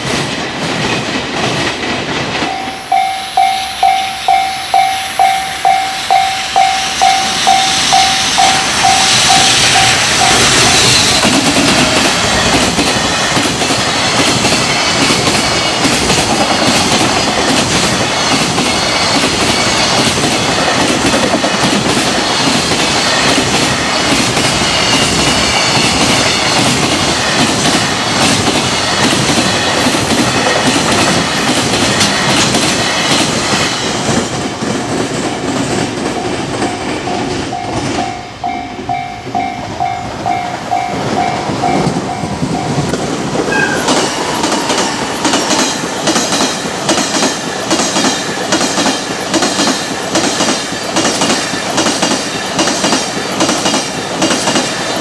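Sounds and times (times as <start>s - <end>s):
train wheels clattering: 0.0s - 55.0s
level crossing bell ringing: 2.5s - 11.0s.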